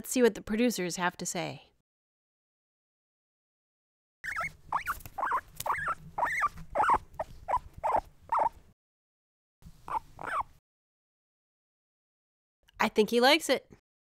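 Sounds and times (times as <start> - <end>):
guinea pig squeaking: 4.2 - 8.6, 9.8 - 10.6.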